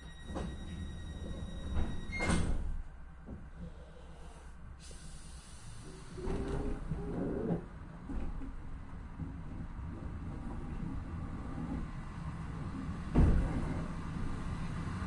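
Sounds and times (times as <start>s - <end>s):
sliding doors shutting thump: 13.1s - 13.9s.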